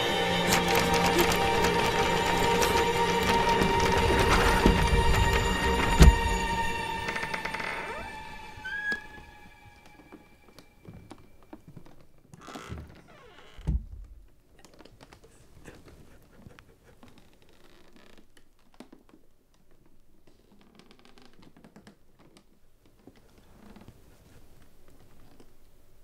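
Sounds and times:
faint clicks and scratches: 0.4s - 6.2s, 14.3s - 26.0s.

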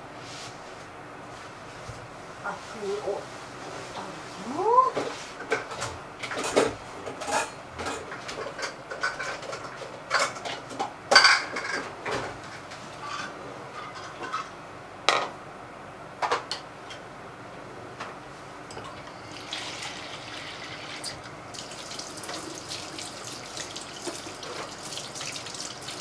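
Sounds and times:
dishes and utensils clinking: 5.5s - 15.3s.

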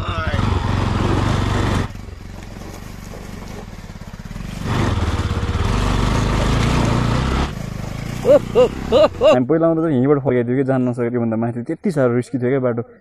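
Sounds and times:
motorcycle engine revving: 0.0s - 9.4s.

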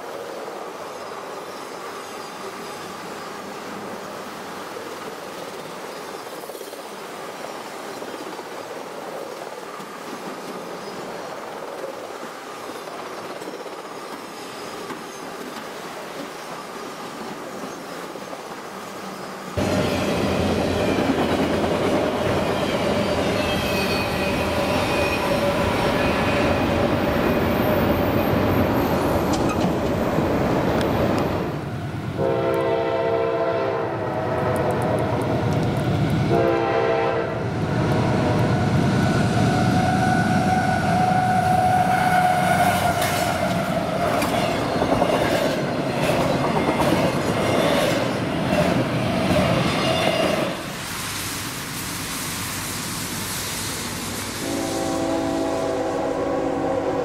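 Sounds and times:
train wheels clattering on rail: 4.8s - 18.7s, 19.6s - 31.5s, 41.6s - 50.9s
high wheel squeal: 22.3s - 26.8s
locomotive air horn blasts: 32.2s - 34.6s, 36.3s - 37.4s, 54.4s - 57.0s.

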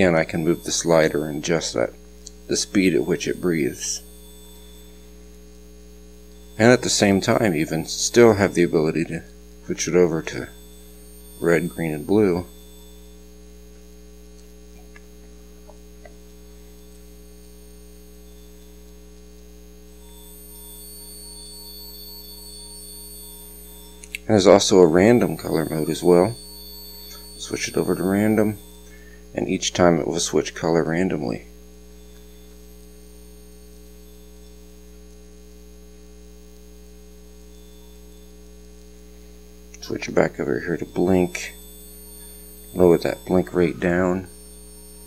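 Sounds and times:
electrical mains hum: 0.0s - 45.0s
faint pulsing tone: 0.0s - 45.0s
faint ticks: 2.2s - 2.5s, 32.0s - 34.6s.

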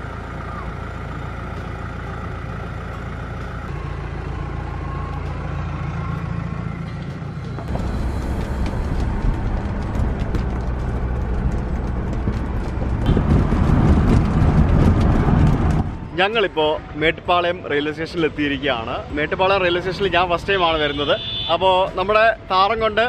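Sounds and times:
engine and road noise in cabin: 0.0s - 17.2s
diesel engine idling: 0.0s - 23.0s.

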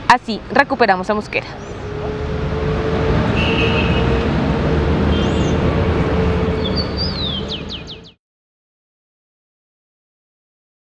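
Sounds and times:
low rumble of traffic: 0.0s - 8.2s
bird chirping: 1.1s - 8.2s.

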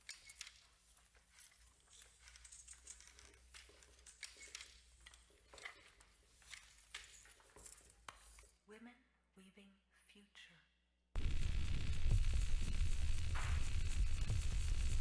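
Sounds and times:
faint clicks and rustles: 0.0s - 8.6s.

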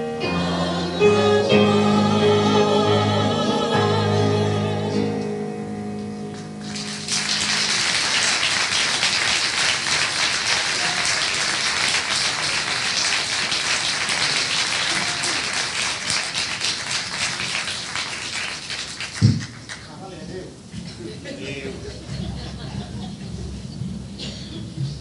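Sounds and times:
choir final note: 0.0s - 5.4s
audience applauding: 6.6s - 20.0s.

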